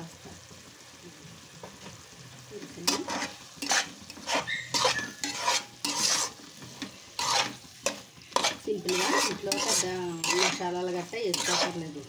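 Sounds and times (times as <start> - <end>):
spatula scraping metal pan: 2.8 - 12.0
metal squeal: 4.3 - 5.6.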